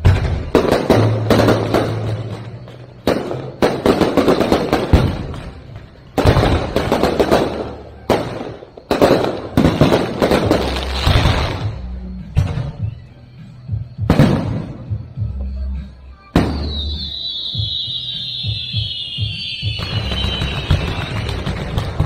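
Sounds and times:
firework crackling: 0.0s - 11.9s, 16.4s - 22.0s
firework shells bursting: 16.4s - 22.0s.

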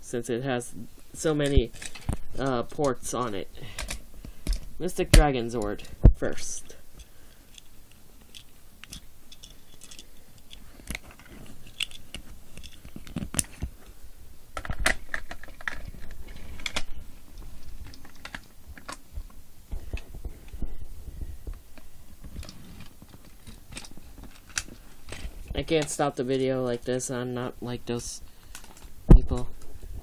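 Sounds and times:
plastic toy parts clicking: 7.5s - 11.1s.

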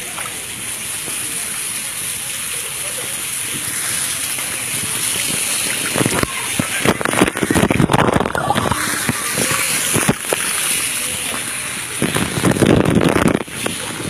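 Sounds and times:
water splashing and sloshing: 0.0s - 14.0s
wind buffeting microphone: 5.1s - 10.8s, 11.8s - 14.0s.

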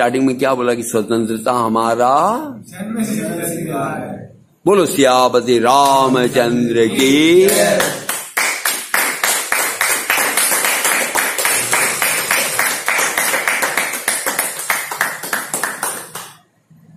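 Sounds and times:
hands clapping quickly: 7.0s - 16.4s.

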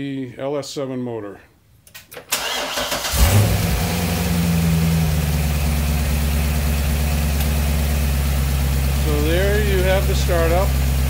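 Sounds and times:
car engine starting and idling: 2.2s - 11.0s.

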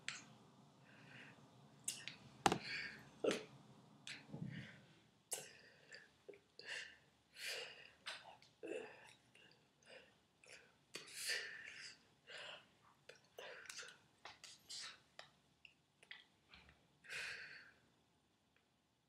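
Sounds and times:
whispery breath and mouth sounds: 7.5s - 15.2s.

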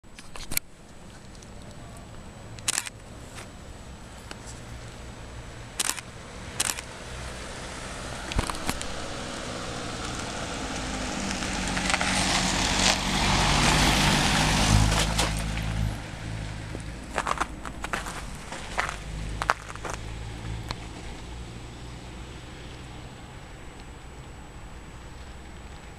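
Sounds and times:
sharp clicks: 2.6s - 3.1s, 5.8s - 6.9s
fire engine passing by: 3.2s - 25.9s.

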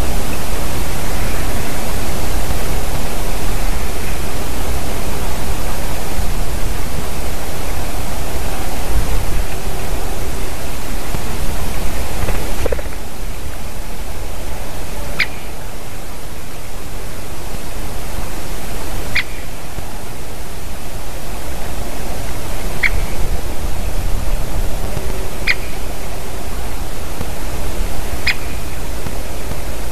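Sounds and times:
steady hiss: 0.0s - 29.9s
woodpecker calls: 15.0s - 15.7s, 19.1s - 19.7s, 22.5s - 23.2s, 25.3s - 26.0s, 28.2s - 28.9s.

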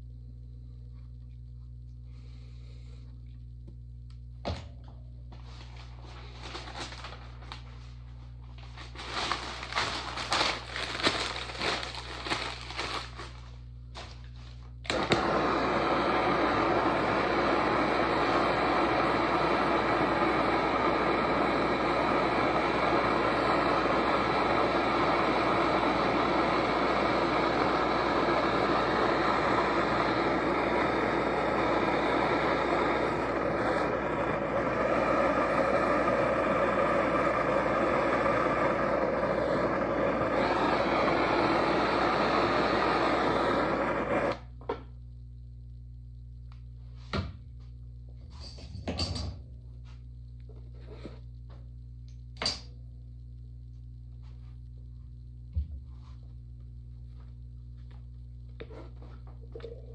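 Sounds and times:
low steady hum: 0.0s - 59.9s
gas torch hissing: 9.2s - 13.3s, 14.8s - 44.5s.

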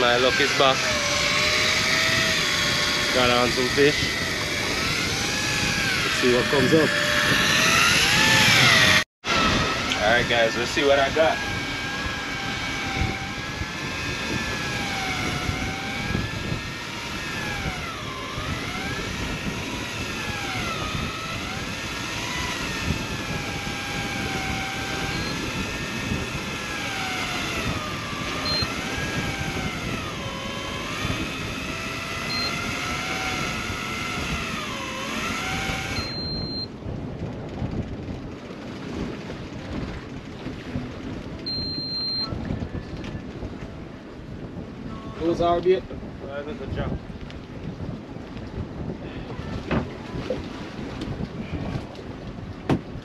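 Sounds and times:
electric fishing reel motor whine: 0.0s - 36.7s, 41.5s - 42.4s
sea noise: 0.0s - 53.0s
wind: 0.0s - 53.0s
short high beeps: 28.5s - 28.7s, 32.3s - 32.6s, 36.0s - 36.7s, 41.5s - 42.4s.

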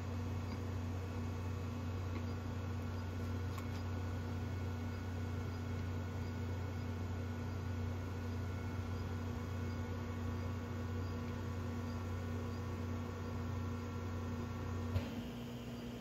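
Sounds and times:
low hum with tones: 0.0s - 16.0s
faint high chirps: 4.8s - 13.9s.

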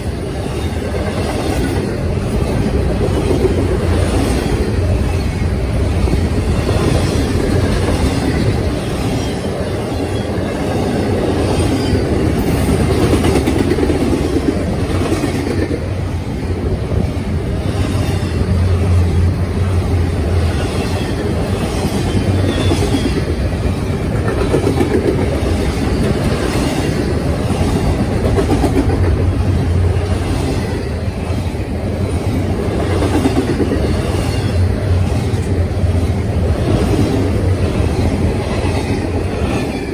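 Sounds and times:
freight train wheels rumbling: 0.0s - 39.9s.

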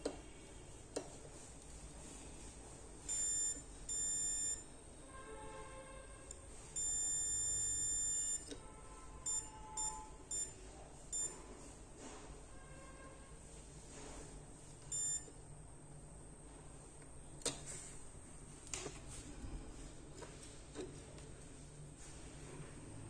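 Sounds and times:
multimeter continuity beeps: 3.0s - 4.8s, 6.3s - 8.6s, 9.2s - 11.4s, 14.8s - 15.4s.

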